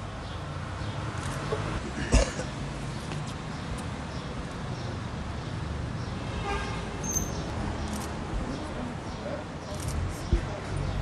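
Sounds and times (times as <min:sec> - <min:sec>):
street traffic rumble: 0:00.0 - 0:11.0
brief high squeak: 0:07.0 - 0:07.4.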